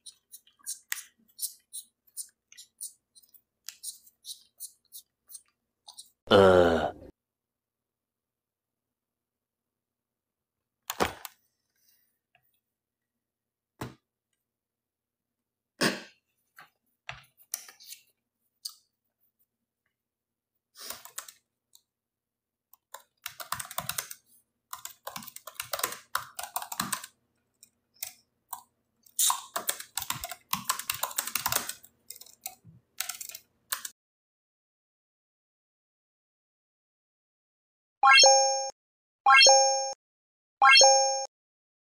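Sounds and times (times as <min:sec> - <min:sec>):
rapid keyboard-like clicking: 0:20.8 - 0:21.4, 0:22.8 - 0:28.6, 0:29.2 - 0:33.9.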